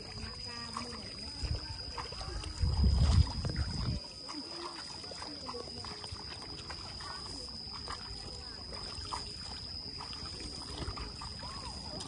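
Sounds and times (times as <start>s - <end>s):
faint distant voices: 0.0s - 12.0s
water trickling: 0.0s - 12.0s
wind rumble on microphone: 1.4s - 4.1s.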